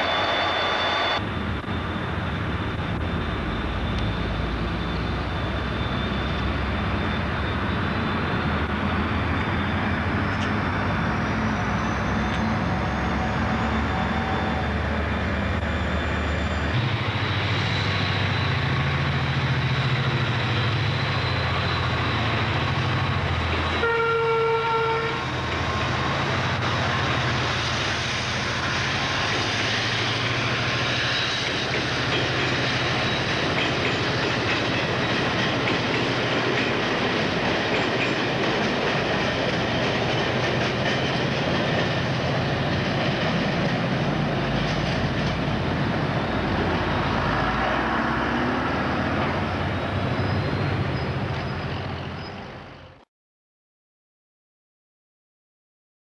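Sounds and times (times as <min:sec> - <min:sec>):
diesel locomotive engines droning: 0:00.0 - 0:53.0
locomotive horn: 0:23.7 - 0:25.4.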